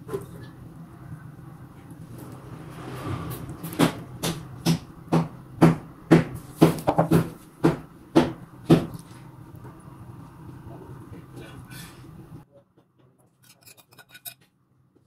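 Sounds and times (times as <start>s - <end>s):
metal spoon clinking on glass bowl: 13.4s - 14.4s.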